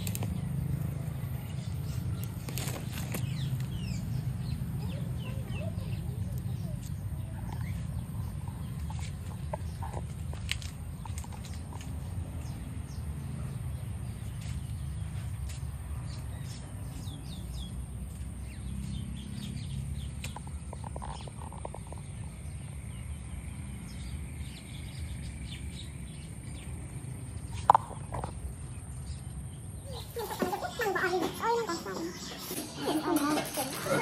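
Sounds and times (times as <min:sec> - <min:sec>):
birds chirping: 0:00.0 - 0:34.0.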